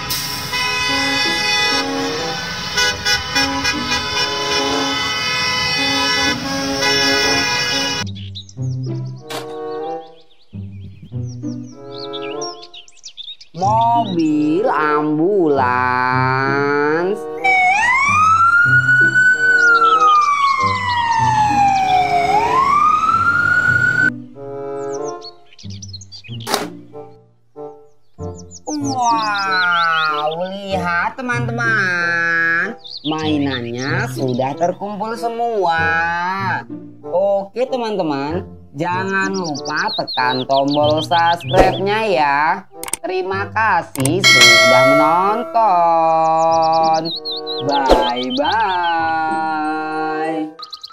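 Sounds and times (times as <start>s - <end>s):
bus horns honking: 0.0s - 8.0s, 44.2s - 45.9s
background music: 0.0s - 50.9s
ambulance siren wailing: 17.4s - 24.1s.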